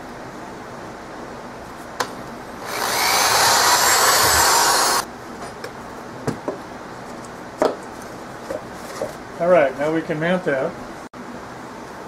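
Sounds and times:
power drill boring through plywood: 2.6 - 5.0.

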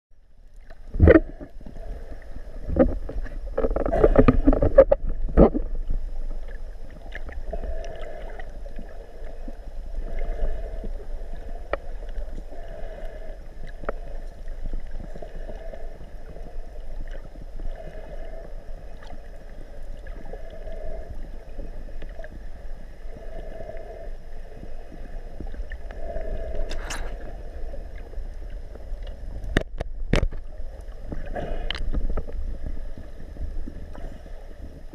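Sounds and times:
muffled underwater wash: 0.1 - 34.9.

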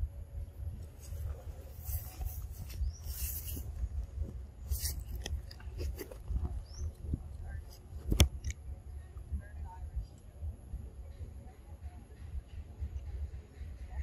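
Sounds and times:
low microphone rumble: 0.0 - 14.0
monkey chewing food: 4.7 - 6.6.

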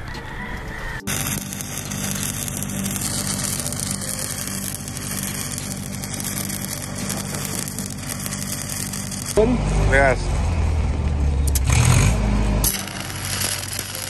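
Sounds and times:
welding arc crackling hiss: 1.0 - 9.6, 12.6 - 14.0
welder engine running: 1.0 - 14.0.

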